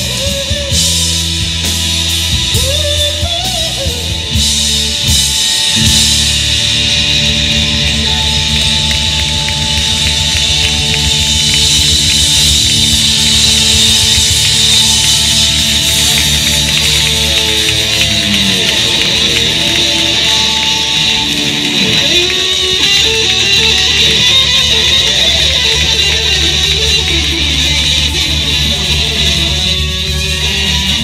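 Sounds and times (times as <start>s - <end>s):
blues-rock band playing: 0.0s - 31.0s
electric guitar bent notes: 0.0s - 31.0s
cymbals washing: 4.4s - 31.0s.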